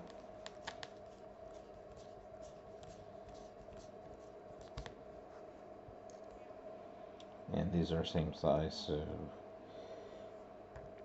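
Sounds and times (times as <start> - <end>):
screwdriver clicking and scratching: 0.0 - 1.0
faint steady hum: 0.0 - 11.0.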